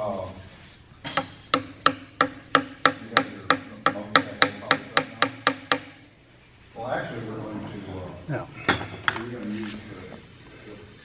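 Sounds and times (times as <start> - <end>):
chisel clicking on wood: 1.1 - 6.0.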